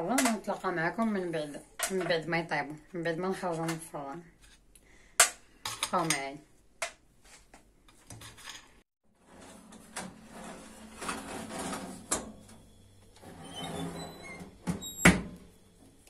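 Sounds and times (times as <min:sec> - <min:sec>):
metal baking trays clattering: 0:09.5 - 0:12.4.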